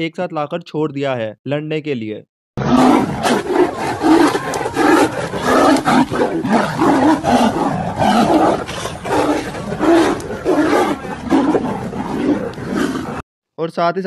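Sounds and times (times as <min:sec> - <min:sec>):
animals roaring and growling: 0:02.6 - 0:13.2.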